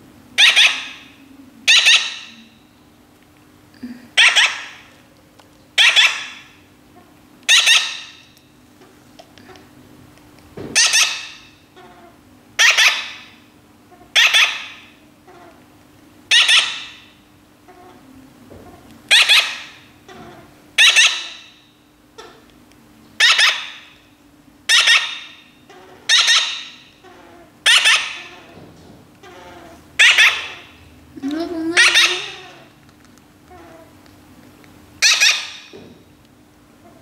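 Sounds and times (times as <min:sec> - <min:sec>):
baby parrot squawking: 0:00.4 - 0:02.4, 0:04.2 - 0:04.9, 0:05.8 - 0:06.5, 0:07.5 - 0:08.2, 0:10.8 - 0:13.3, 0:14.0 - 0:15.6, 0:16.3 - 0:17.1, 0:19.1 - 0:21.6, 0:23.2 - 0:23.9, 0:24.7 - 0:28.5, 0:29.2 - 0:30.8, 0:31.7 - 0:32.8, 0:35.0 - 0:35.7.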